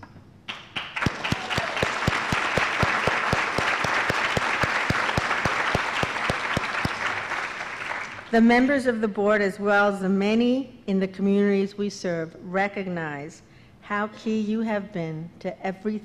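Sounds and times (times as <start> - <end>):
audience applauding: 0.5 - 8.4
hands clapping close to microphone: 0.5 - 8.4.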